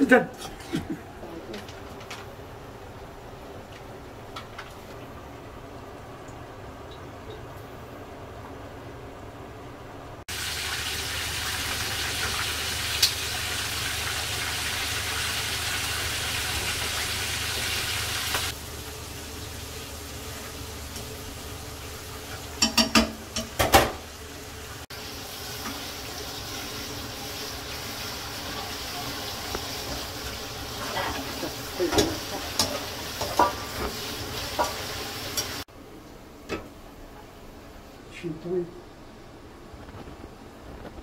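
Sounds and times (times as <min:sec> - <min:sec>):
deep-frying sizzle in oil: 0:10.3 - 0:35.7
metal clatters against pan: 0:22.6 - 0:23.9.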